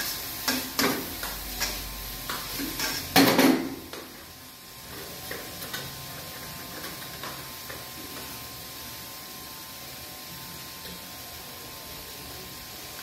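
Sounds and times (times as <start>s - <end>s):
utensils clicking against pan: 0.0s - 3.3s
noodles sizzling in a wok: 0.0s - 13.0s.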